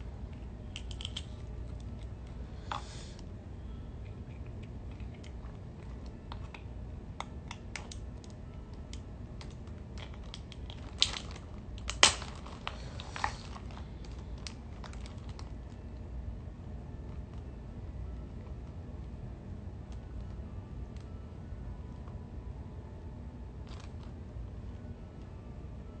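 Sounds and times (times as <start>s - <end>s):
seafood shell cracking: 0.8s - 1.3s, 9.4s - 13.1s.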